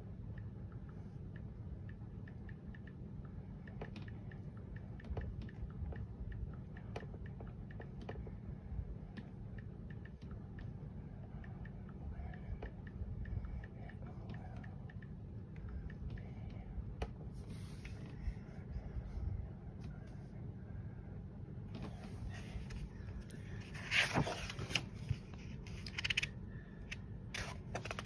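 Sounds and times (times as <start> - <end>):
low steady hum: 0.0 - 28.0
book pages handled: 21.8 - 26.3, 27.3 - 28.0.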